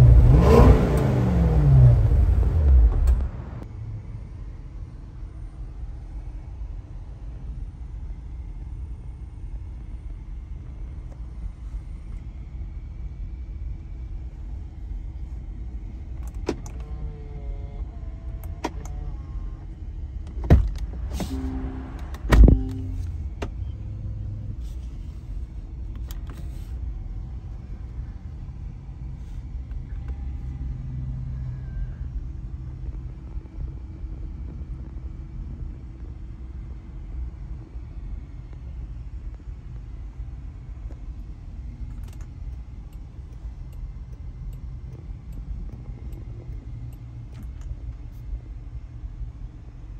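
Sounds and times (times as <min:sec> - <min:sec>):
loud thumps: 0:20.4 - 0:23.1
car engine idling: 0:20.8 - 0:23.6.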